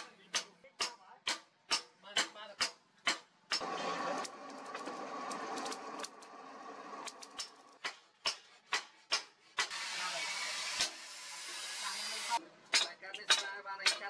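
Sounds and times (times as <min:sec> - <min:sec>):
coal forge hissing: 0:03.6 - 0:07.8, 0:09.6 - 0:12.4
hammer striking hot steel on anvil: 0:12.7 - 0:14.0.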